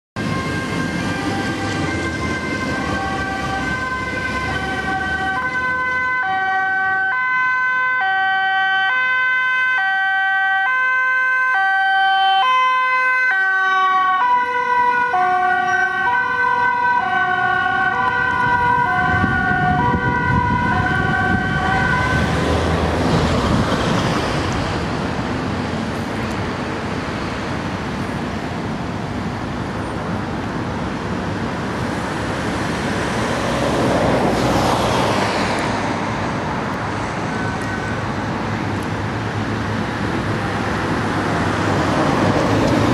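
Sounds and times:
ambulance siren two-tone wail: 0.2 - 22.7
road traffic noise: 0.2 - 42.9.

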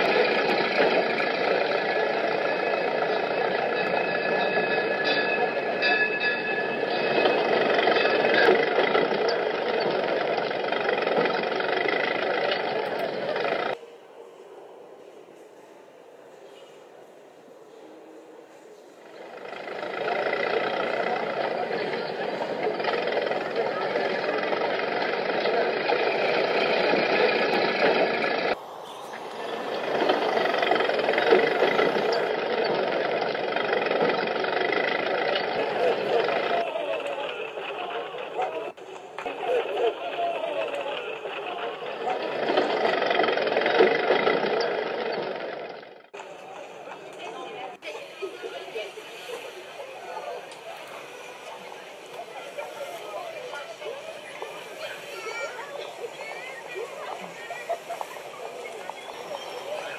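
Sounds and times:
vehicle engine running: 0.0 - 13.8, 19.1 - 28.6, 29.2 - 47.7
murmur of voices: 0.0 - 59.9
traffic noise: 0.0 - 59.9.

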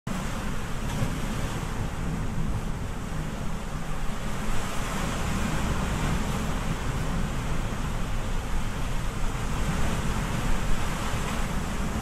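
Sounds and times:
heavy surf rushing: 0.1 - 12.0
wind rumbling on microphone: 0.1 - 12.0.

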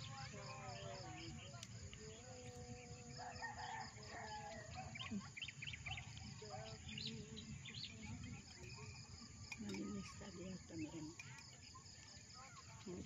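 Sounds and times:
small birds chirping: 0.0 - 13.0
rooster crowing: 3.2 - 5.0.

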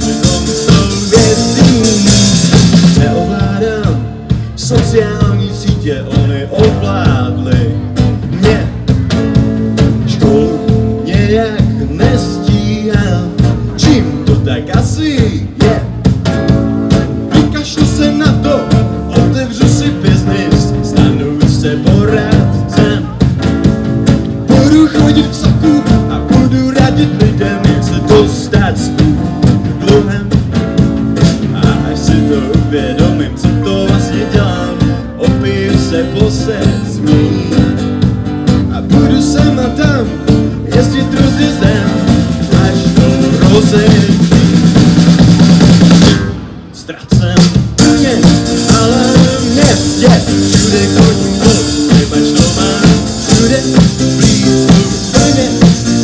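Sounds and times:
drum kit beat: 0.0 - 56.0
electric bass: 0.0 - 56.0
strummed acoustic guitar: 47.8 - 56.0.

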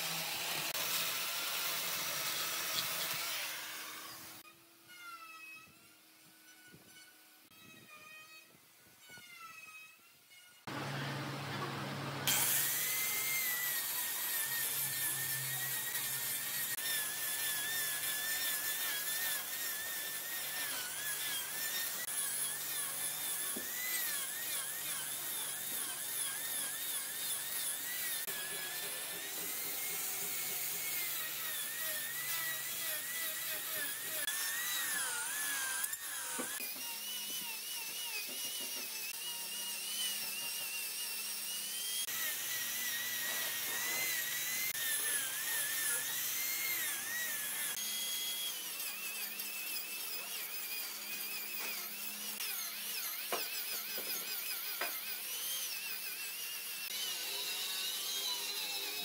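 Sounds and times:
angle grinder carving wood: 0.0 - 59.0.

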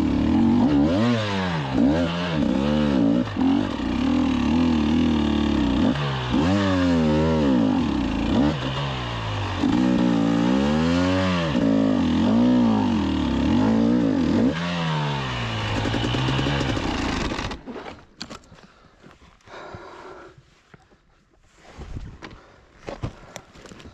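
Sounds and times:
motorcycle engine revving: 0.0 - 17.7.

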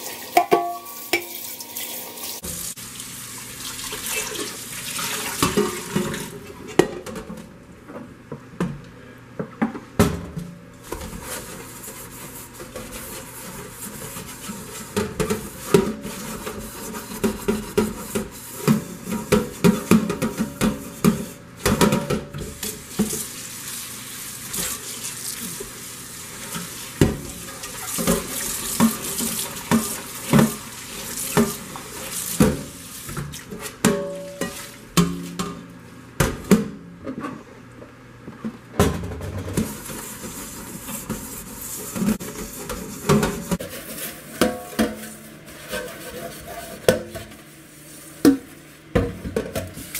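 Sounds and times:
metal pot knocking on sink: 0.4 - 1.4
sponge scrubbing metal pot: 10.9 - 35.4, 39.6 - 48.5.

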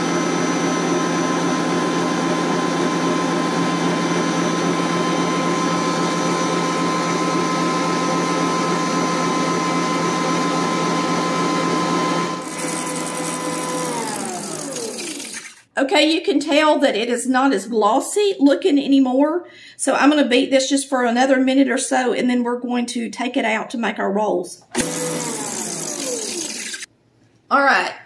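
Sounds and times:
stand mixer running: 0.0 - 15.6, 24.7 - 26.9.

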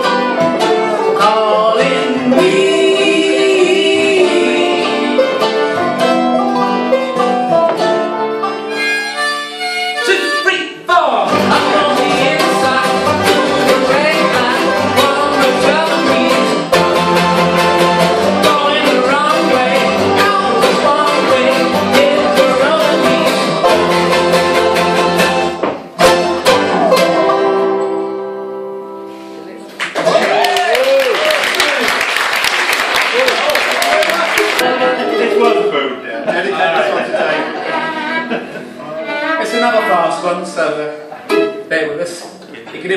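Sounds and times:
bluegrass band playing: 0.0 - 30.4, 32.6 - 42.9.

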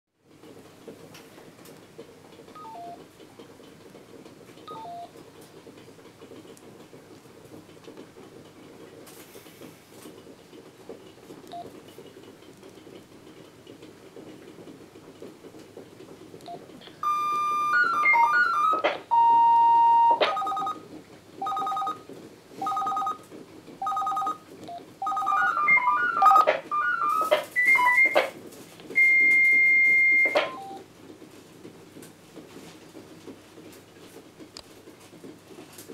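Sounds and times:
rapid stepping tones: 0.2 - 35.9
faint keypad beeps: 2.6 - 3.0, 4.7 - 5.1, 16.4 - 20.8, 21.4 - 22.0, 22.6 - 23.2, 23.8 - 28.3, 29.0 - 30.8
steady high tone: 25.0 - 28.3.

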